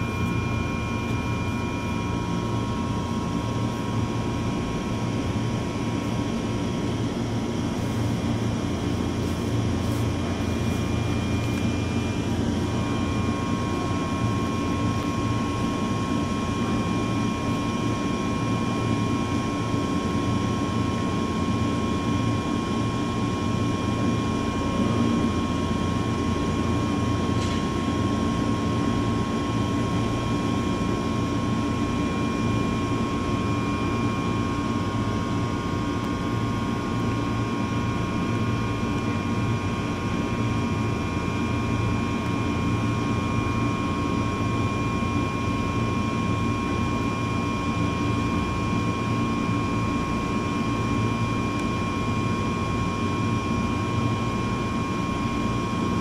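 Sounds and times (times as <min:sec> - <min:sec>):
electric train equipment whine: 0:00.0 - 0:55.9.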